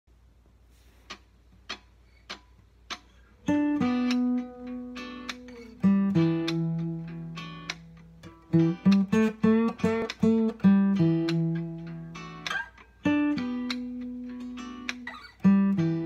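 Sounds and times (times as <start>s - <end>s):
acoustic guitar plucked chords: 3.4s - 16.0s
taps on guitar body: 8.6s - 10.6s.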